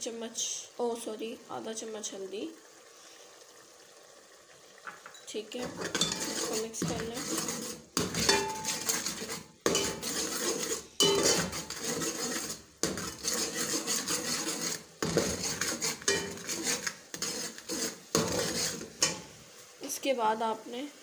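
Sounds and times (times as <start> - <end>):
metal ladle scraping a metal pot: 5.6 - 19.3.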